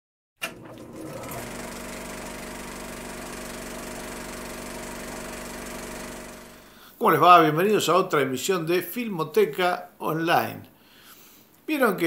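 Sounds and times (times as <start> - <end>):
film projector click: 0.4 - 2.3
film projector whirring and clattering: 0.4 - 6.7.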